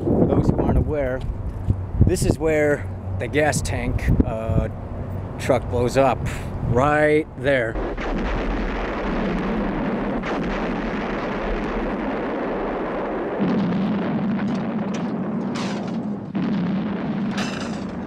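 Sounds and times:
explosion and fire rumble: 7.6s - 18.0s
explosion blasts: 7.6s - 18.0s.

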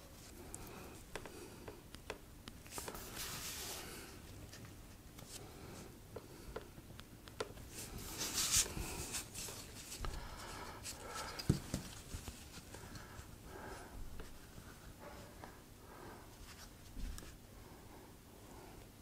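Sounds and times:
light taps and handling: 11.2s - 13.1s.

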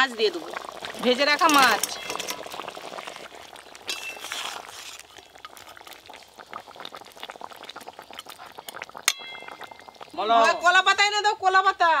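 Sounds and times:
curry bubbling in a metal pot: 0.0s - 11.6s
metal spatula stirring and sloshing: 0.6s - 6.0s.

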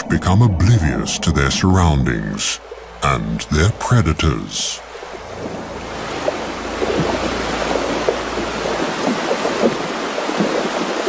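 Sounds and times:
stream rushing over rocks: 2.8s - 11.0s
small water splashes: 4.8s - 11.0s.

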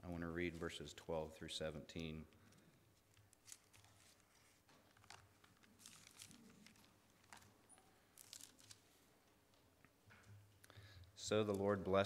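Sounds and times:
paper pages rustling: 3.0s - 9.1s.

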